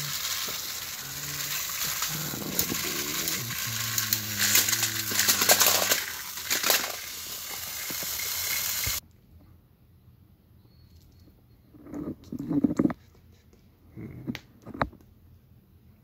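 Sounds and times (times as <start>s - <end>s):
crackling and rustling clicks: 0.0s - 9.0s
toy train motor hum: 0.0s - 9.0s.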